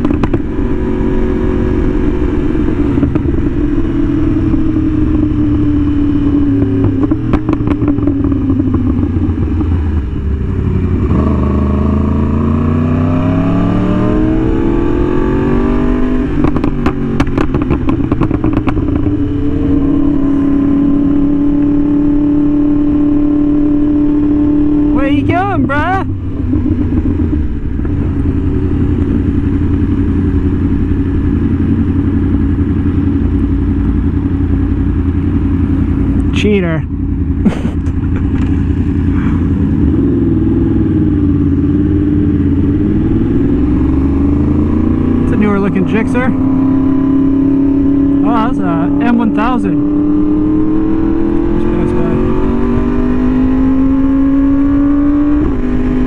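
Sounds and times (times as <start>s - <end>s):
exhaust pops and crackles: 0.0s - 0.6s, 3.0s - 3.4s, 6.6s - 9.0s, 16.4s - 19.2s, 37.4s - 39.4s
motorcycle engine revving: 0.0s - 56.0s.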